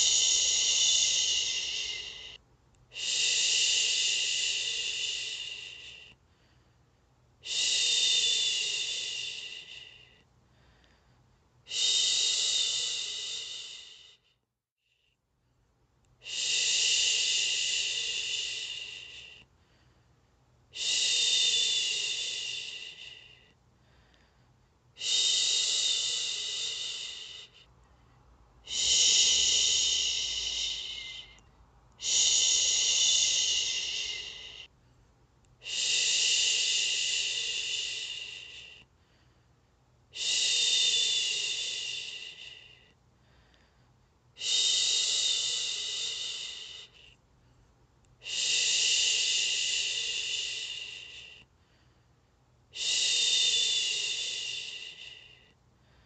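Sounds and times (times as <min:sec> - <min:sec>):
woman shushing: 0:00.0 - 0:06.0, 0:28.6 - 0:31.4, 0:32.0 - 0:34.7.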